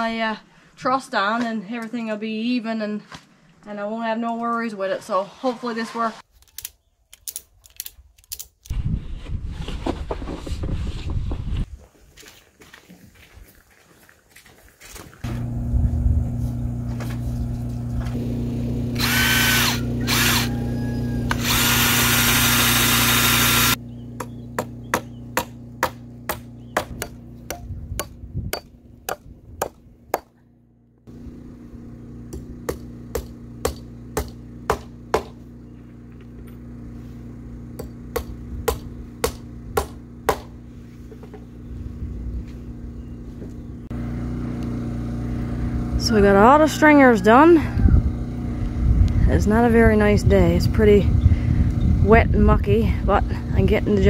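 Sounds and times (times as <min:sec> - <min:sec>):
steady low hum: 0:15.3 - 0:54.0
power saw cutting boards: 0:16.4 - 0:27.0
hammer blows nailing lumber: 0:32.3 - 0:35.4, 0:37.8 - 0:40.6.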